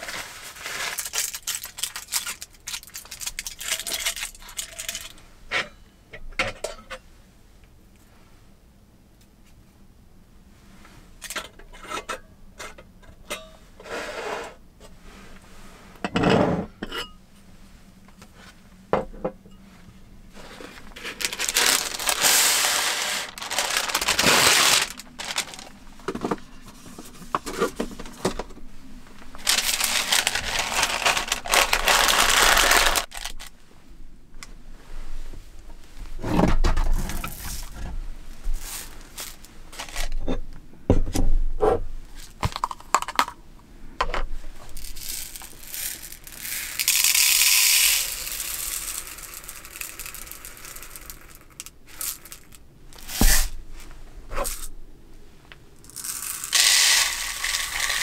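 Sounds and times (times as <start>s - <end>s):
paper rustling and crinkling: 0.0s - 5.1s, 20.4s - 28.4s, 29.2s - 33.5s.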